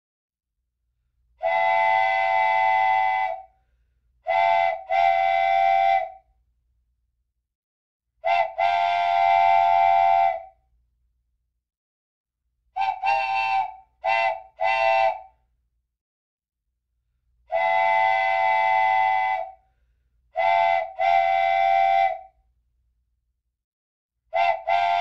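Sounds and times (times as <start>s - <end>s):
steam train whistle blasts: 1.4s - 3.5s, 4.3s - 6.2s, 8.2s - 10.6s, 12.8s - 15.3s, 17.5s - 19.6s, 20.4s - 22.3s, 24.4s - 25.0s.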